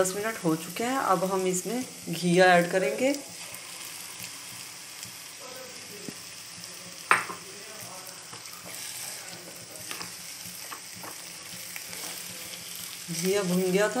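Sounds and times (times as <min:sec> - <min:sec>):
food sizzling in a frying pan: 0:00.0 - 0:14.0
spatula scraping a pan: 0:08.3 - 0:12.9.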